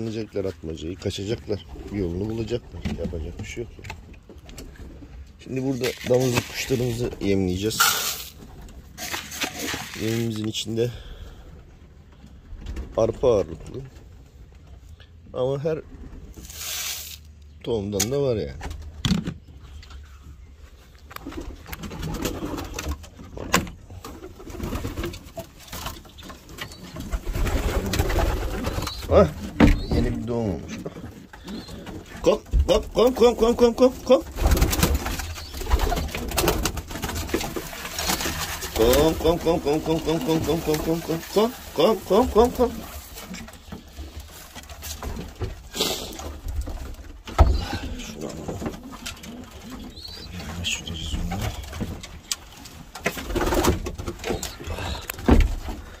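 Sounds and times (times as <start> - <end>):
pigeons cooing: 26.1 - 44.2, 45.7 - 52.2, 53.2 - 56.0.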